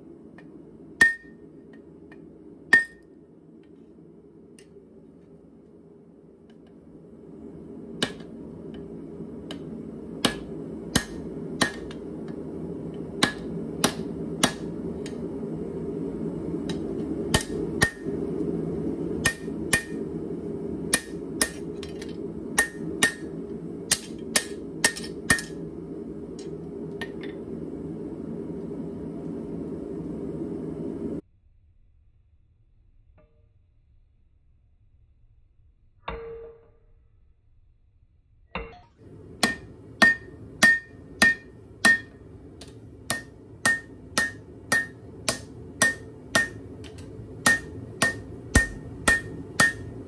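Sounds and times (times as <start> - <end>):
low rushing noise: 3.2 - 31.2, 39.0 - 50.0
hammer blows on anvil: 9.5 - 12.1, 16.7 - 18.2, 19.2 - 20.1, 20.9 - 25.6, 39.1 - 50.0.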